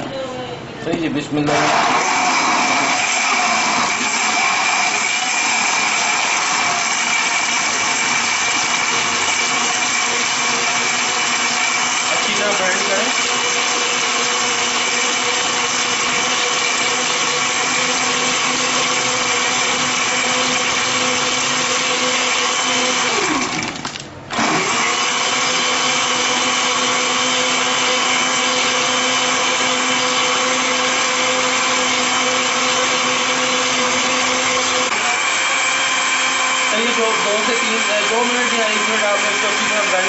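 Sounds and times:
blender running: 1.4s - 40.0s.

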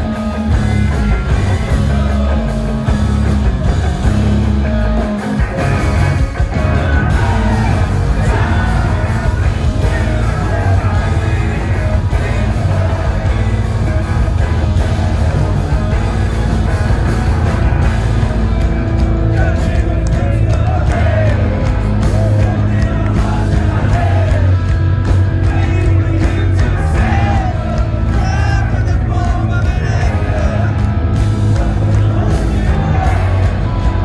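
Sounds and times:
bass guitar: 0.0s - 34.0s
drums: 0.0s - 34.0s
electric guitars: 0.0s - 34.0s
singer's vocals: 6.2s - 16.6s, 18.9s - 34.0s.

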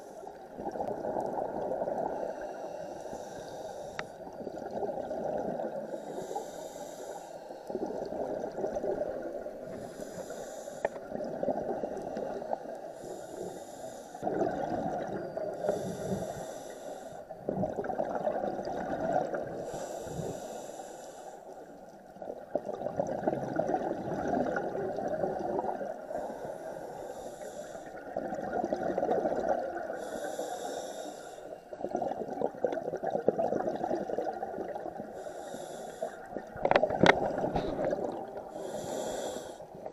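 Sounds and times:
exhaled bubbles gurgling: 0.0s - 2.8s, 3.9s - 6.6s, 7.6s - 13.0s, 14.2s - 20.6s, 22.0s - 26.9s, 27.9s - 30.4s, 31.7s - 39.9s
regulator hissing inhale: 2.0s - 4.2s, 5.8s - 7.8s, 9.6s - 11.1s, 11.8s - 14.2s, 15.5s - 17.5s, 19.6s - 21.8s, 26.1s - 28.1s, 29.9s - 31.8s, 35.1s - 36.5s, 37.5s - 39.8s.

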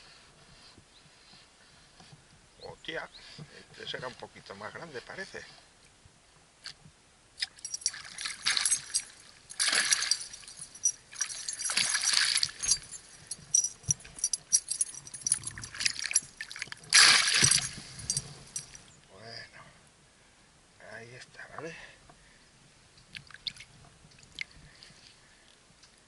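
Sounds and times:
fish thrashing and splashing water: 7.8s - 12.8s, 15.6s - 18.1s.

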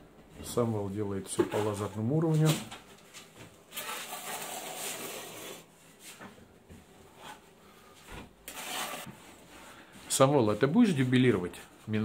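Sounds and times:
scraping on insulation: 8.5s - 9.1s.

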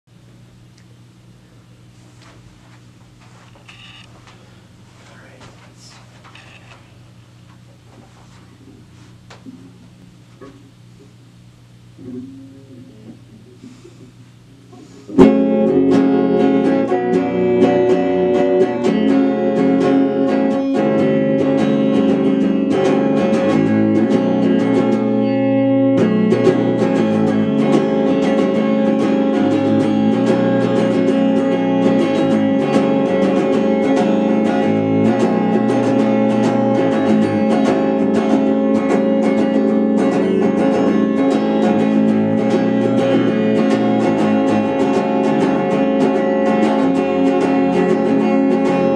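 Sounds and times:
electric guitar playing: 14.7s - 48.9s.

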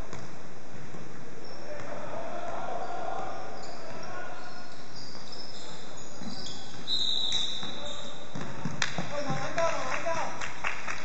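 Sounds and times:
shoes squeaking on floor: 3.6s - 8.3s
basketball bouncing: 7.6s - 9.6s.

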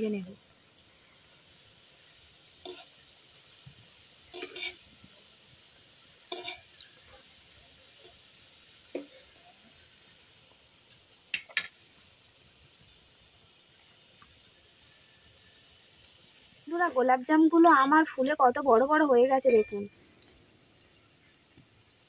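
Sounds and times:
oil sizzling: 0.0s - 22.0s
strainer clinking in pan: 4.3s - 4.8s, 6.3s - 6.9s, 17.6s - 18.1s, 19.4s - 19.9s.

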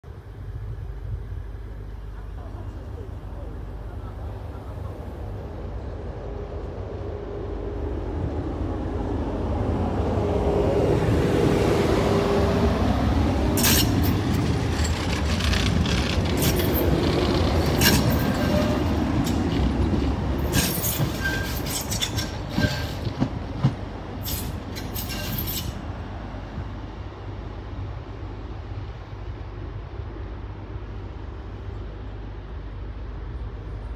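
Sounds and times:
tram rumbling past: 0.0s - 33.9s
tram motor whine: 0.1s - 33.9s
wheel squeals on rails: 13.6s - 19.6s, 20.4s - 23.2s, 24.2s - 25.8s.

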